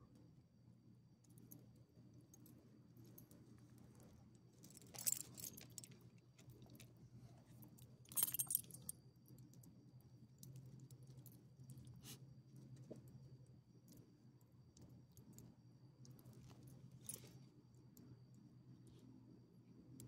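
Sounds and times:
low steady hum: 0.0 - 20.0
dog tags jingling: 8.1 - 8.9.

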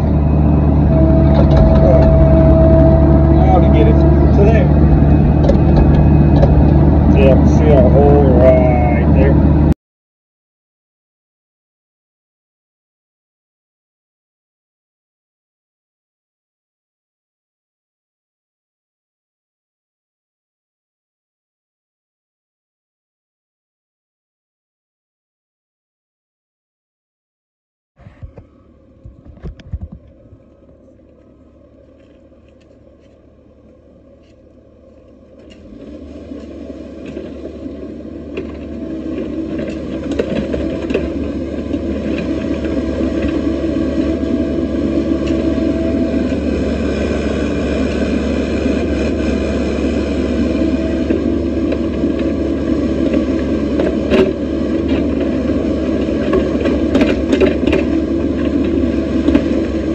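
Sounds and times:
excavator diesel engine: 0.0 - 9.8, 28.0 - 59.9.

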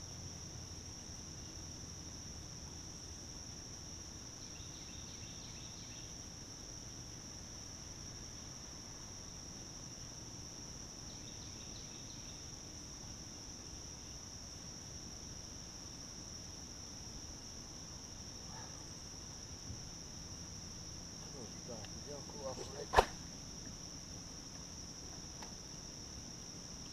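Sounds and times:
insects droning: 0.0 - 26.9
fishing rod swish: 22.6 - 23.2.

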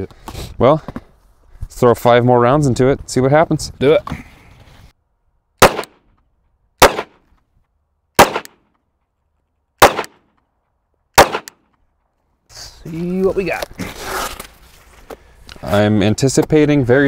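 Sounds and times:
pistol shots with echo: 5.6 - 6.0, 6.8 - 7.2, 8.2 - 8.6, 9.8 - 10.2, 11.2 - 11.6.

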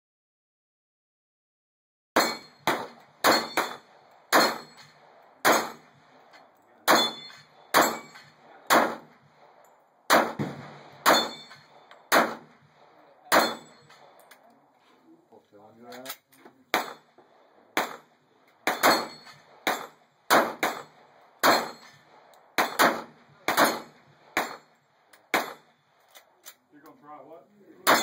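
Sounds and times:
steel target ringing: 2.2 - 5.8, 6.9 - 8.4, 11.0 - 11.9, 13.3 - 14.0, 18.7 - 19.9
pistol shots: 2.2 - 14.3, 16.7 - 26.2.

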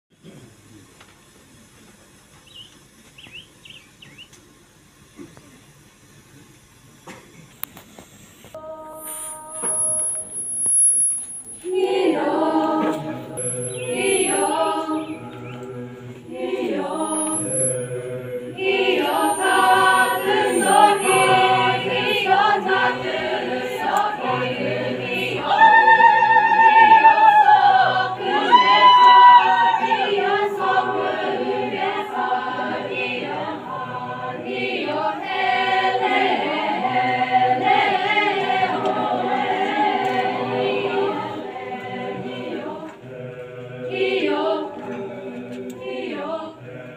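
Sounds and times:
choir singing folk song: 8.5 - 46.9
solo voice singing: 8.6 - 10.3, 11.6 - 35.3.

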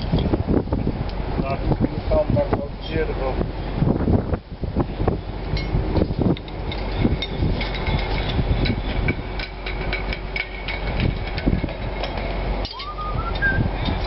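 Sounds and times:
hand tools knocking on metal: 5.6 - 14.0
rising whine: 12.6 - 13.8.

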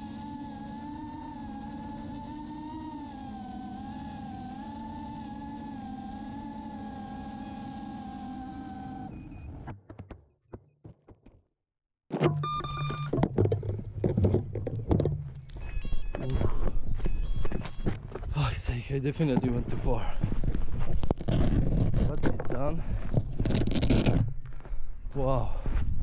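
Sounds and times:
drone motors whining: 0.0 - 9.7, 12.3 - 13.3, 14.9 - 21.4
high beeps: 12.2 - 13.2, 15.5 - 17.9.

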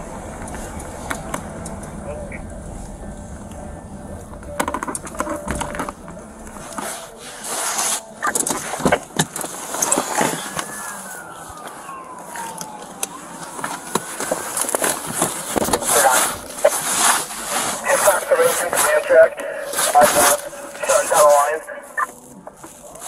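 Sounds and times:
faint falling tone: 0.0 - 7.5
rustling against camera microphone: 13.8 - 23.0.

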